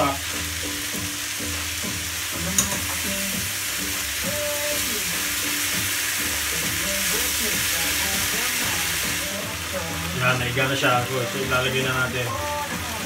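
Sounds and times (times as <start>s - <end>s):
rice sizzling in a frying pan: 0.0s - 13.0s.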